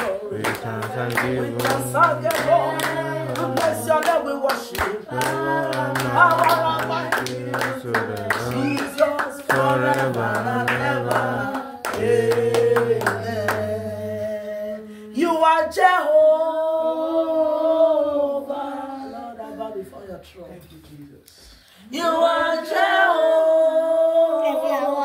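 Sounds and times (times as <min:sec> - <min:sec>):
woman singing: 0:00.0 - 0:12.2
hands clapping: 0:00.0 - 0:13.7.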